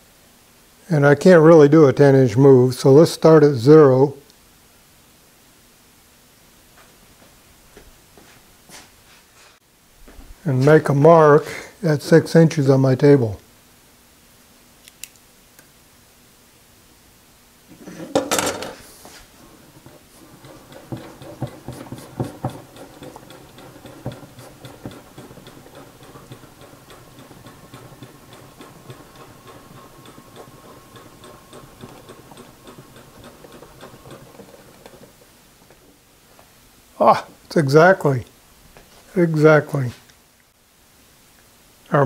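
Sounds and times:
tools clattering on table: 17.8 - 18.8
scattered knocks: 19.5 - 35.2
mechanical readout ticking: 20.3 - 35.1.

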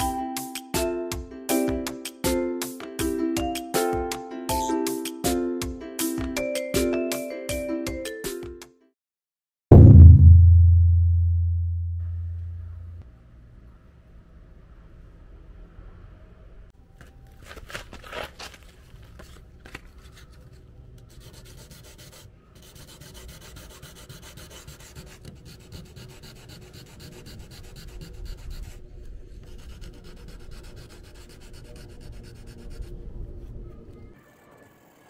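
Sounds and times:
sandpaper rubbing on paint: 21.1 - 33.4.

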